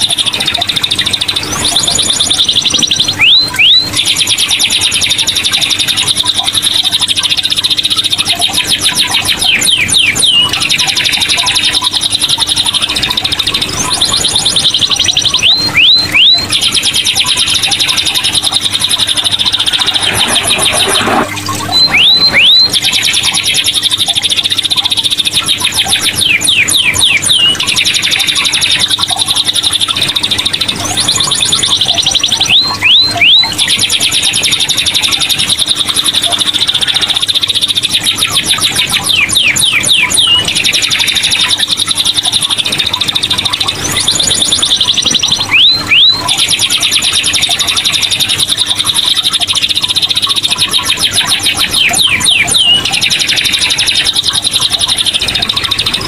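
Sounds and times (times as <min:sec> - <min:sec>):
canary singing trills: 0:00.0 - 0:56.0
downward-sliding whistles: 0:17.4 - 0:24.4.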